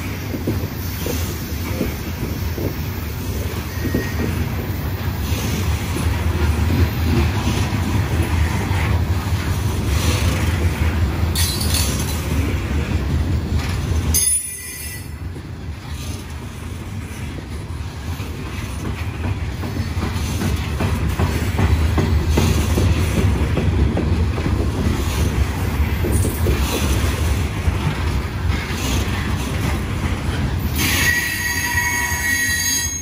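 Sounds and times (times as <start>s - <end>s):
train cars rolling on rails: 0.0s - 33.0s
wheel squeals: 30.8s - 33.0s.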